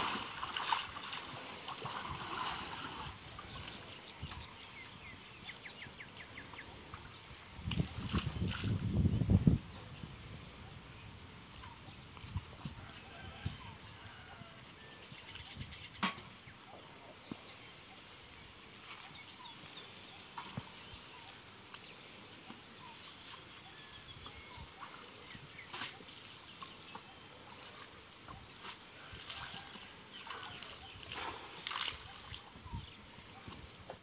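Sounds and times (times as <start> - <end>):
water sloshing and splashing: 0.0 - 4.7, 7.6 - 9.0, 24.2 - 34.0.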